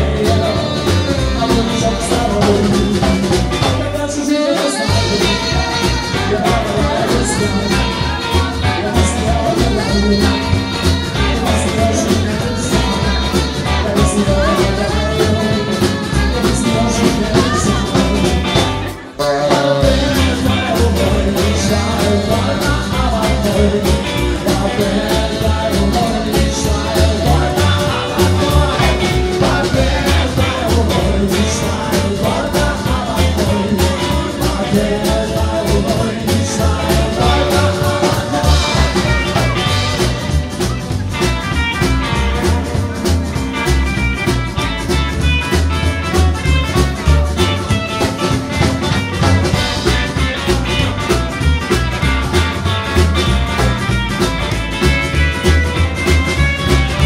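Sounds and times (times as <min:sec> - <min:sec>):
saxophone: 0:00.0 - 0:34.8, 0:35.9 - 0:57.0
acoustic guitar: 0:00.0 - 0:57.0
drums: 0:00.0 - 0:57.0
electric guitar: 0:00.0 - 0:57.0
person singing: 0:00.0 - 0:57.0
upright double bass: 0:00.0 - 0:57.0.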